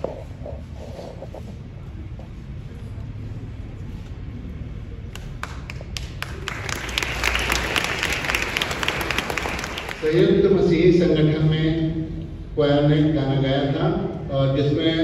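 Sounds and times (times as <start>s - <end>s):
congregation applauding: 5.1s - 10.3s.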